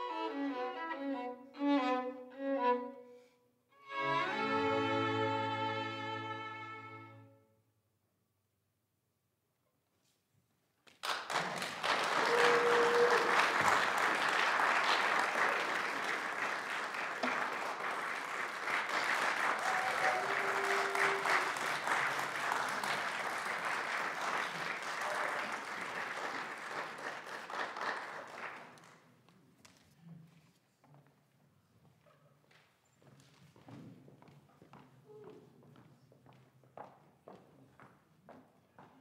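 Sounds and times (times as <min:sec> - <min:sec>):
audience applauding: 0:10.9 - 0:29.0.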